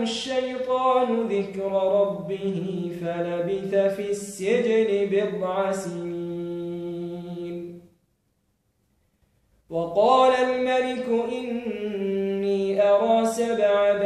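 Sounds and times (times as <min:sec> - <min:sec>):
man chanting melodically: 0:00.0 - 0:07.8, 0:09.7 - 0:14.0.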